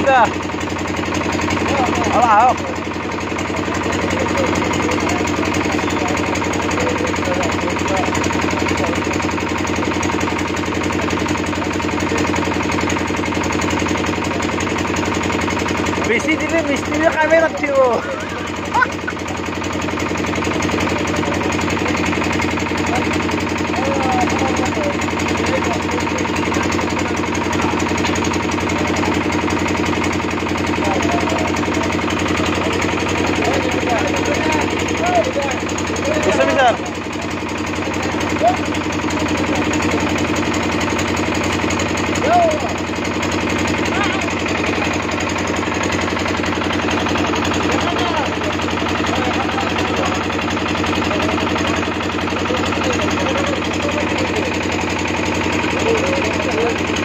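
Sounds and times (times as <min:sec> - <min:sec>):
engine idling: 0:00.0 - 0:57.0
faint voices: 0:17.7 - 0:20.0.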